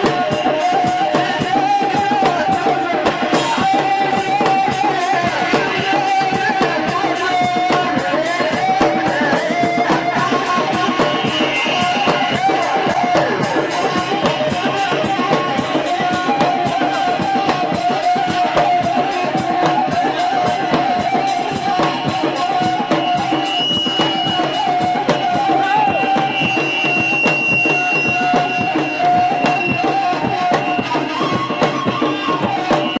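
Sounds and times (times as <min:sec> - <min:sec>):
fast drum beat: 0:00.0 - 0:33.0
reed flute melody: 0:00.0 - 0:33.0.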